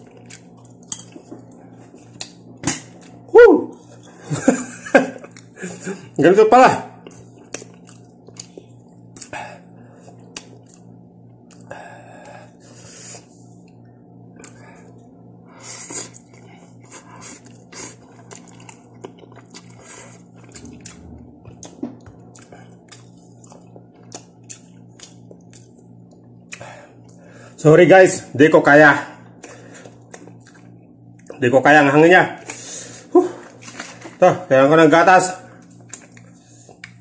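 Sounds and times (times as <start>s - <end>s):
person chewing noodles: 0.0s - 4.1s, 5.2s - 5.9s, 7.0s - 27.4s, 29.4s - 31.4s, 35.6s - 37.0s
low hum: 18.0s - 27.5s.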